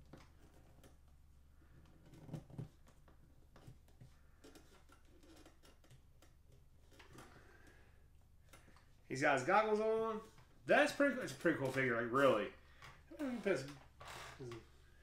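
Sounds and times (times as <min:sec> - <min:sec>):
plastic parts clicking: 0:01.8 - 0:09.0.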